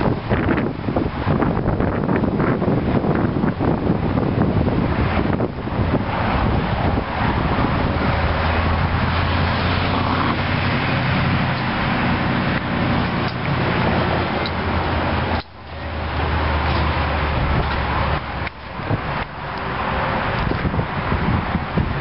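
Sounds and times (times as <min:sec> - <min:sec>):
wind noise on microphone: 0:00.0 - 0:22.0
car engine idling: 0:05.6 - 0:20.5.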